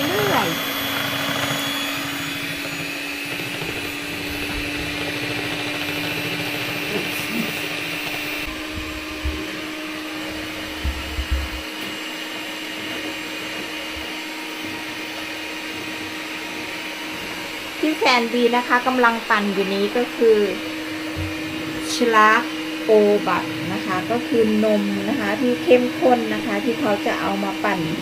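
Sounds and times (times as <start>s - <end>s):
electric hand mixer whipping cream: 0.0s - 28.0s
low bumps: 8.4s - 11.8s.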